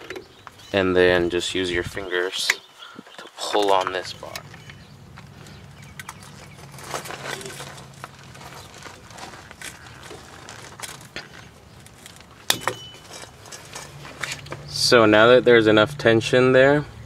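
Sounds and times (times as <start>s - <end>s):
metallic clicks and scrapes: 5.4s - 14.6s.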